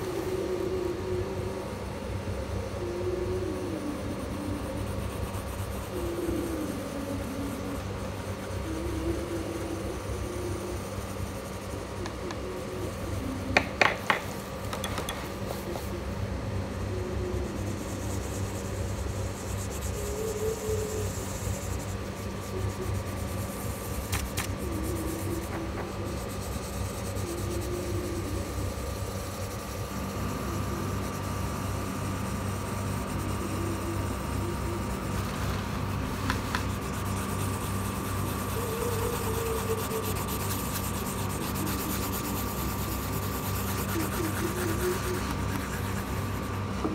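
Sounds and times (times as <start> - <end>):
steady background hum: 0.0 - 46.9
colored pencil shading on paper: 17.4 - 46.9.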